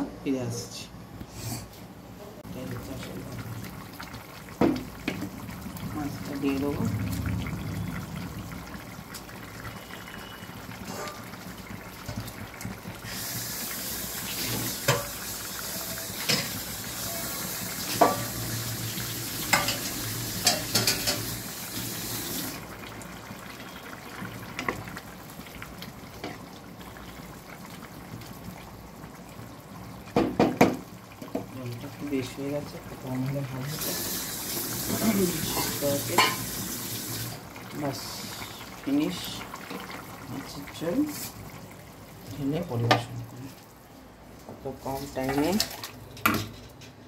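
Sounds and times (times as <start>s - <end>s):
curry simmering and sizzling: 2.4s - 47.0s.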